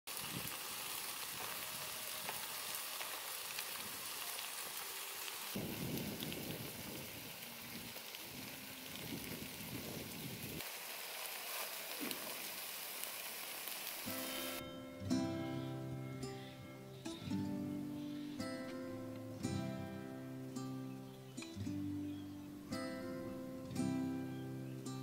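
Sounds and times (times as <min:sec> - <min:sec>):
food sizzling and crackling in tray: 0:00.1 - 0:14.6.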